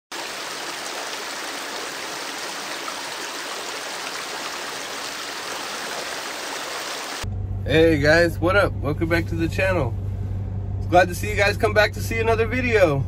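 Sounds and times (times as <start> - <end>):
water rushing over spillway: 0.1 - 7.2.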